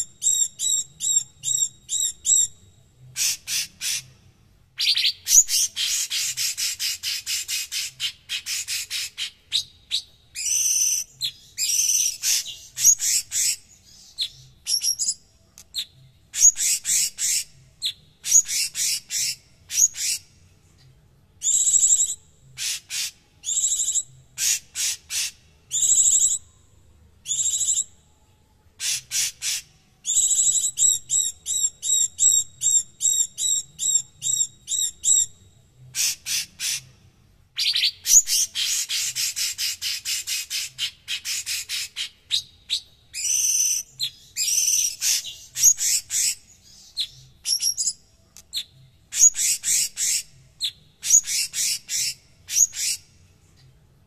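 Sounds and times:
bird singing: 0.0s - 20.4s, 21.4s - 36.9s, 37.5s - 53.7s.

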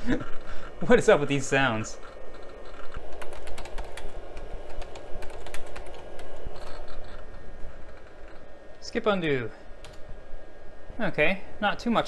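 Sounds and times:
steady hum: 0.0s - 12.0s
hard drive heads clicking: 2.0s - 8.5s.

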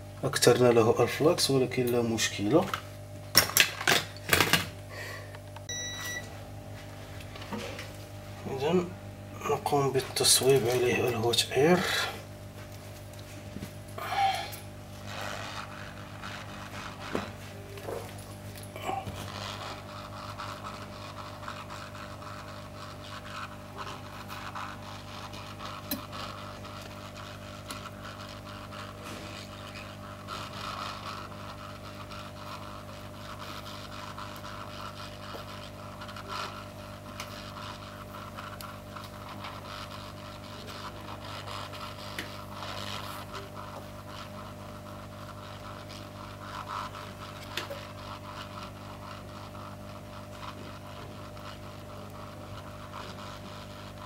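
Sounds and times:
hot-air station blowing: 0.0s - 54.0s.

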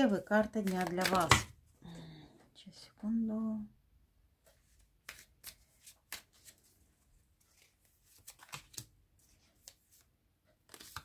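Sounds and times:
cards shuffling and flicking: 0.6s - 1.6s, 4.7s - 6.7s, 7.5s - 11.0s.

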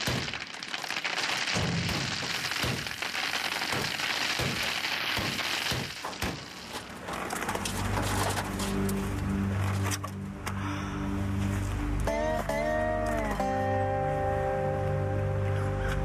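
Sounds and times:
hailstones pelting down: 0.0s - 8.4s.

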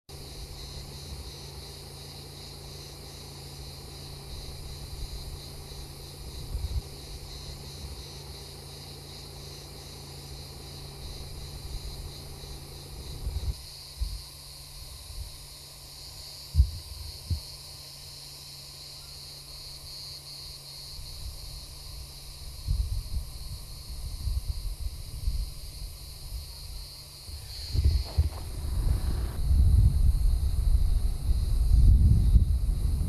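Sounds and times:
insect chorus buzzing: 0.1s - 33.0s
dull bumps: 27.3s - 30.4s
low rumble: 27.3s - 33.0s.

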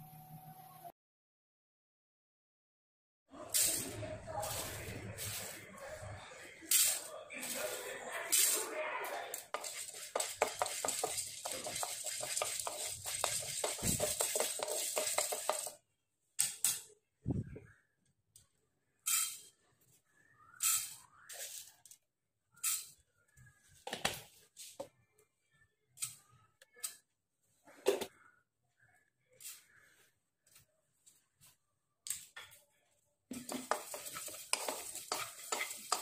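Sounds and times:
dry grains rattling in a pan: 9.4s - 15.8s, 33.4s - 36.0s
spoon tapping a pan: 33.4s - 36.0s.

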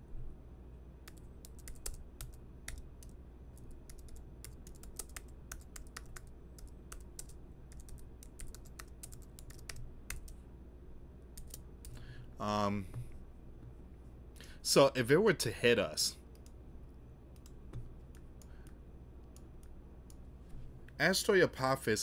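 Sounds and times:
typing on computer keyboard: 1.1s - 10.4s, 11.4s - 12.0s.

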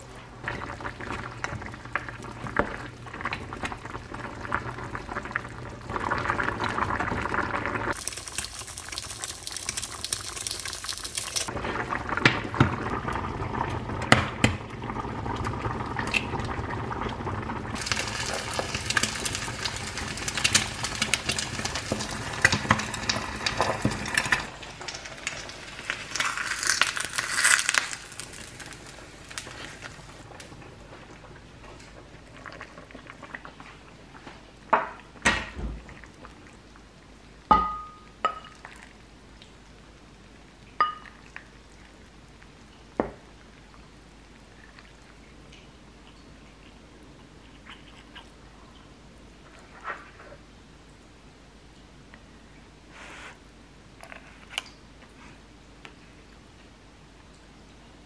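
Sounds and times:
stew bubbling in a pot: 0.0s - 52.8s
egg sizzling in a frying pan: 7.3s - 11.5s, 17.7s - 30.3s.

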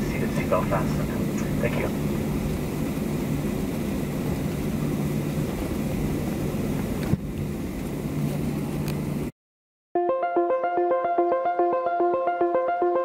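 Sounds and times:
jet engine hum: 0.0s - 9.3s.

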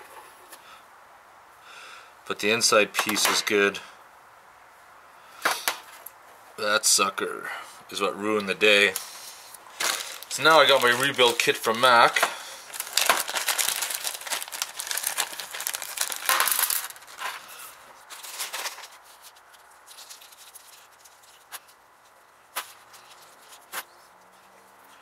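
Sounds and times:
plastic bag crinkling: 9.7s - 21.8s.

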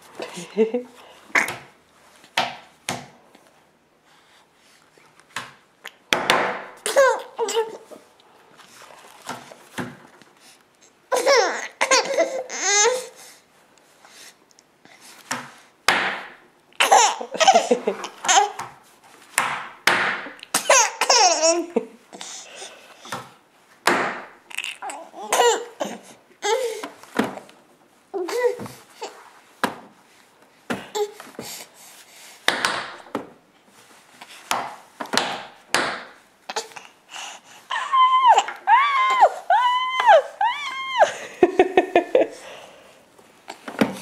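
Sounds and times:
baby laughing: 11.1s - 13.0s, 16.8s - 18.6s, 20.5s - 21.8s.

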